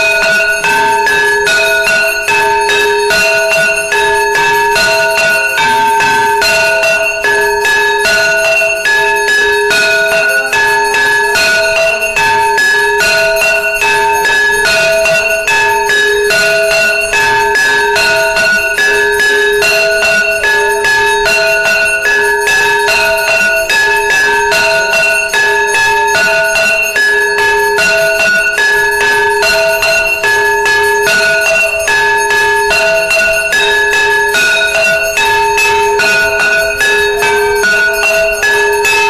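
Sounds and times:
temple bells ringing: 0:00.0 - 0:39.0.

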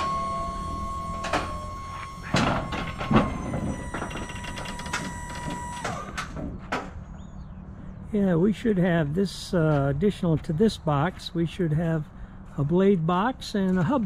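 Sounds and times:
metal clunks and knocks: 0:00.0 - 0:07.0
hydraulic liftgate whine: 0:00.0 - 0:07.2.

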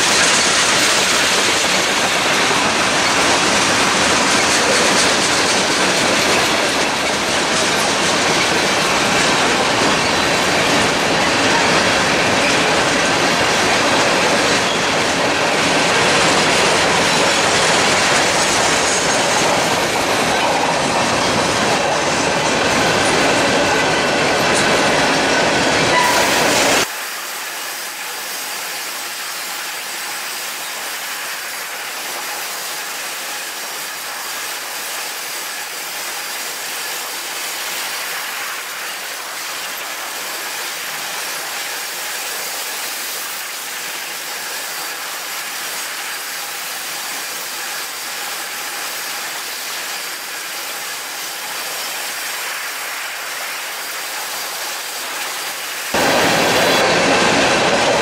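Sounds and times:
clickety-clack over rail joints: 0:00.0 - 0:26.9, 0:28.0 - 0:58.0
train wheels on rail: 0:00.0 - 0:58.0.

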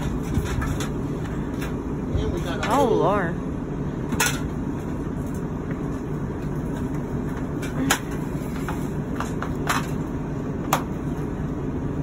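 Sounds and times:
items being shifted knocking: 0:00.0 - 0:01.8
steady low rumble: 0:00.0 - 0:12.0.

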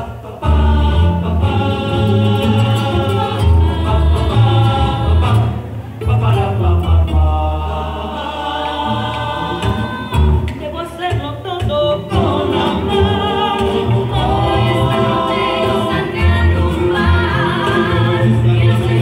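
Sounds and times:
acoustic guitars: 0:00.0 - 0:19.0
voices singing together: 0:00.0 - 0:19.0
low bass line: 0:00.4 - 0:08.2.

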